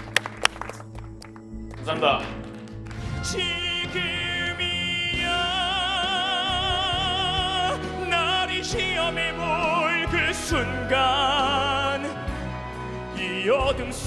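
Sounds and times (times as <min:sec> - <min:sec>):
instrumental accompaniment: 0:00.0 - 0:14.0
man singing operatic ballad: 0:03.1 - 0:14.0.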